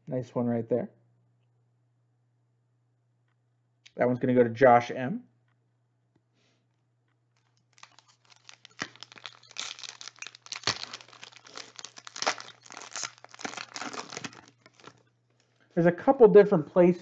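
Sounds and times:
plastic wrapper tearing and crinkling: 0:07.4 - 0:15.6.

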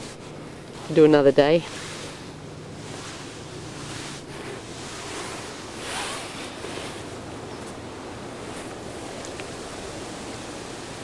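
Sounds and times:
rustling swish of camera: 0:00.0 - 0:07.8, 0:08.4 - 0:09.4
wind hiss on microphone: 0:00.0 - 0:11.0.

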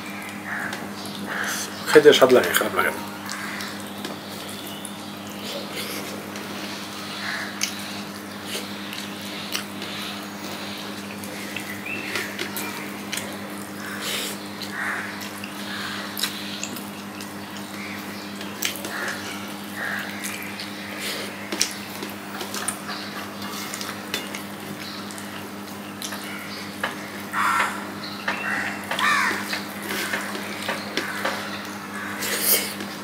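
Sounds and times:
wet chewing: 0:03.2 - 0:27.8.

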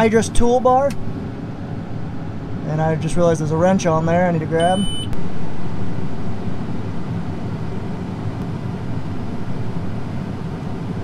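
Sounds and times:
tractor engine running: 0:04.6 - 0:11.0.

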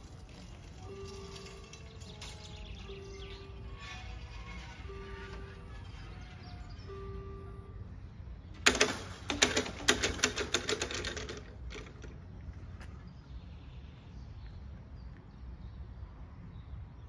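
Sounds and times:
electronic crossing bell: 0:00.6 - 0:08.1.

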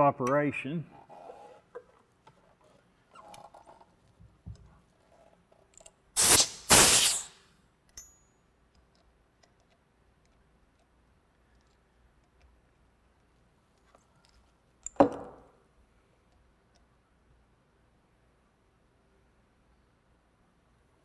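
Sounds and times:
clicks of air fitting: 0:06.2 - 0:07.4
compressed air hissing: 0:06.2 - 0:07.4.

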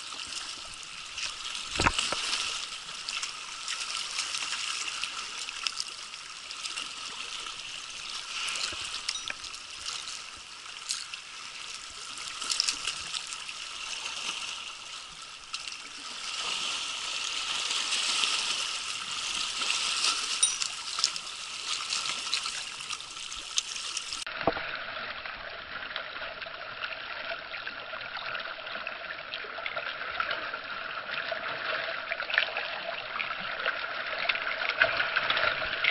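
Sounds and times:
small splashes: 0:00.0 - 0:25.0
waves lapping over rocks: 0:00.0 - 0:27.6.

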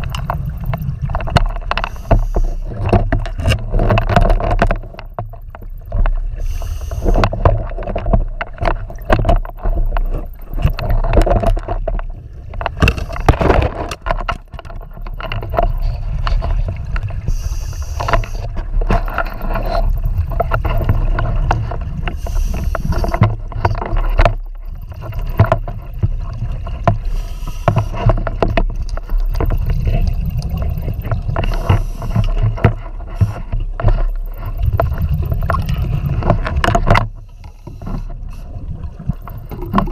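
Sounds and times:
steady low rumble: 0:24.3 - 0:39.9
exhaled bubbles rushing: 0:29.4 - 0:31.4, 0:34.4 - 0:36.7.

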